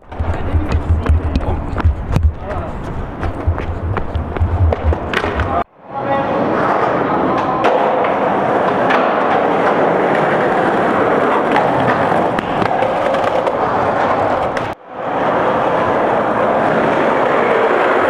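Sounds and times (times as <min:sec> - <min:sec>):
skateboard clacks: 0:00.0 - 0:05.6, 0:07.4 - 0:14.8
skateboard wheels rolling: 0:00.0 - 0:05.6, 0:06.4 - 0:18.0.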